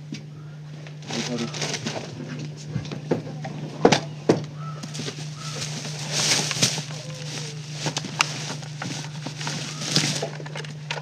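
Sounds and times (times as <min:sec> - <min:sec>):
steady low hum: 0:00.0 - 0:11.0
straw thatch rustling and scraping: 0:00.8 - 0:02.7, 0:04.6 - 0:11.0.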